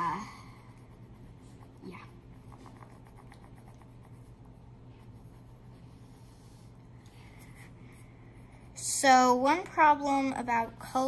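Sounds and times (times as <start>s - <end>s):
crayon scratching on paper: 0.0s - 6.7s, 7.4s - 10.1s.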